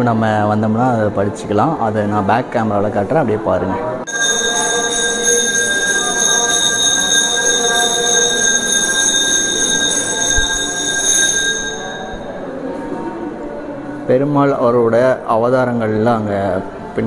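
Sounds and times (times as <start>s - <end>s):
temple bell ringing: 4.1s - 12.8s.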